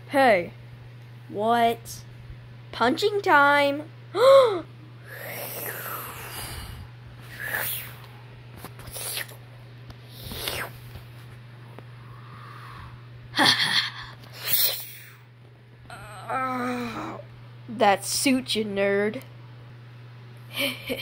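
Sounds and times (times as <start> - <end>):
child making hissing fight sounds: 5.0 - 8.1, 8.8 - 9.4, 10.1 - 10.8, 14.3 - 15.2
child grunting: 15.9 - 17.3.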